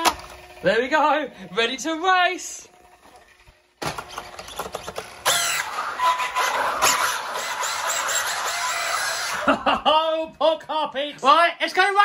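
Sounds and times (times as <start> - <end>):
electric motor whining: 0.0 - 9.5.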